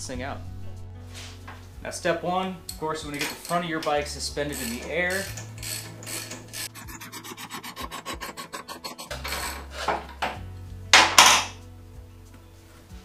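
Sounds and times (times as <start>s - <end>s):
metal scraping: 3.0s - 10.4s
scissor jack rasping clicks: 4.6s - 10.1s.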